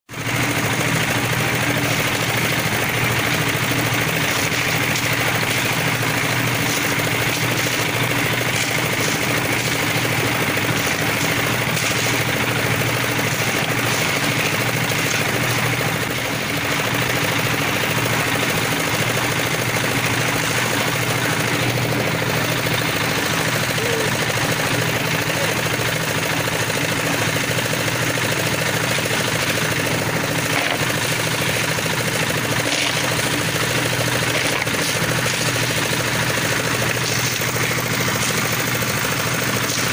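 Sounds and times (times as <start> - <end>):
small engine running: 0.1 - 39.9.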